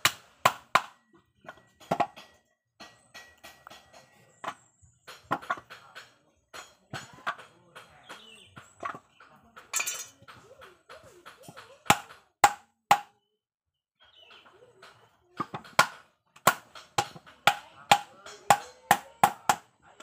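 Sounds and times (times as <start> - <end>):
hammer striking wood: 0.0 - 9.0, 11.2 - 13.2, 15.4 - 19.7.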